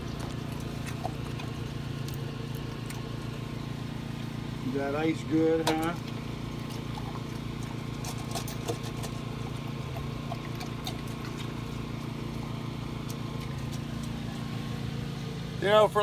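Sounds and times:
dog lapping water: 0.0 - 3.5, 6.0 - 14.5
low machine hum: 0.0 - 16.0.

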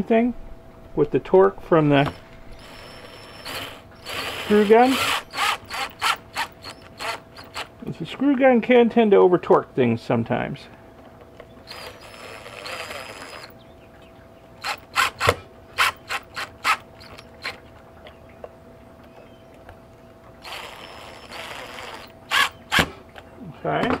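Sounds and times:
cordless drill driving screws: 2.0 - 7.7, 11.6 - 13.5, 14.6 - 17.6, 20.4 - 22.9.

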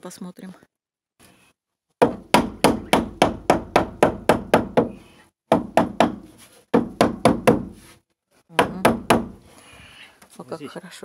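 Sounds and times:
hammer hitting nail into wood: 2.0 - 7.8, 8.6 - 9.4.

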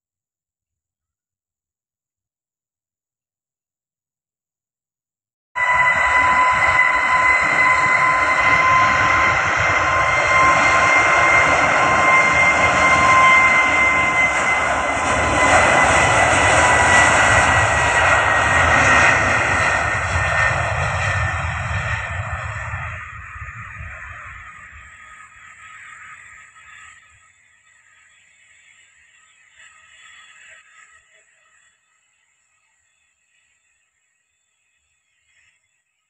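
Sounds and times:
jet engines at high power: 5.6 - 31.8.

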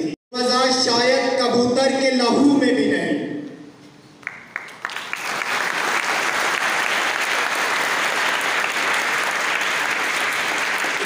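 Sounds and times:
crowd applauding: 4.2 - 11.0.

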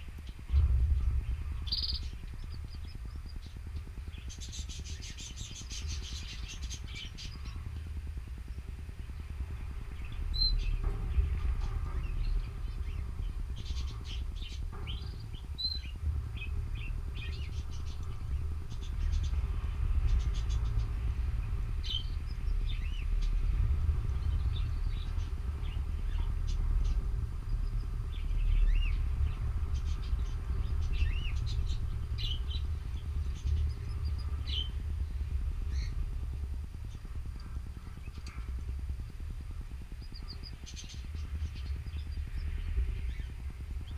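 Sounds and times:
steady low rumble: 0.0 - 43.9
canaries chirping: 1.6 - 7.7, 8.8 - 23.6, 39.4 - 43.9.

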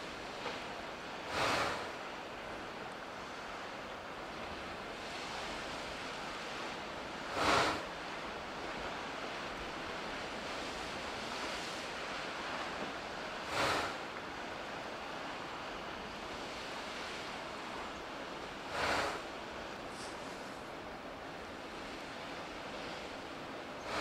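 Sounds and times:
steady surf wash: 0.0 - 24.0
waves whooshing into ice cave: 1.0 - 2.6, 3.2 - 20.8, 21.4 - 24.0.

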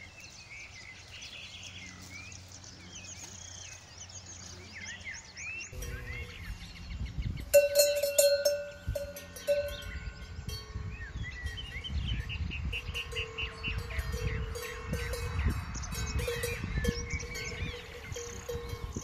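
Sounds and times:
birds chirping: 0.0 - 19.0
cow bell clanking: 5.7 - 6.8, 7.4 - 19.0.

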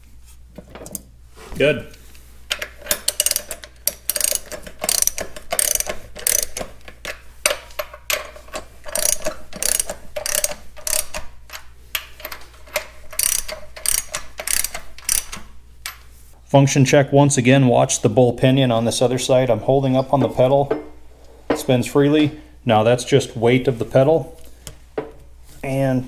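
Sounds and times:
ratchet wrench clicking: 2.6 - 15.4.

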